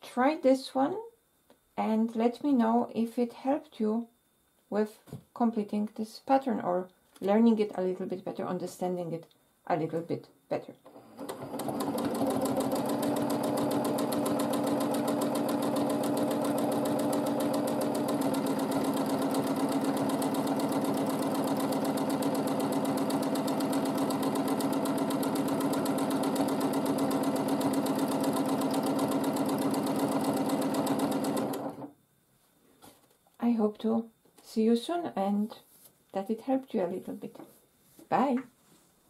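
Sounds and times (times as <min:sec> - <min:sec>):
sewing machine running: 0:10.9 - 0:31.9.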